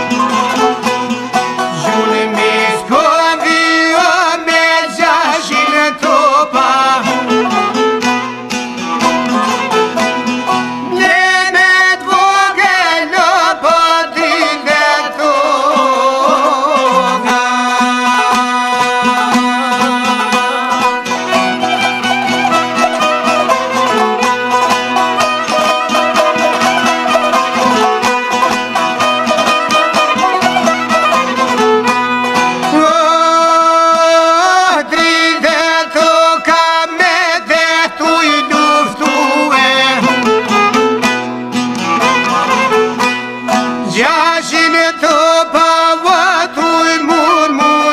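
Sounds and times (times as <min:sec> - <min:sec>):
man singing with vibrato: 0:00.0 - 0:41.2, 0:41.9 - 0:47.9
plucked strings: 0:00.0 - 0:47.9
violin: 0:00.0 - 0:47.9.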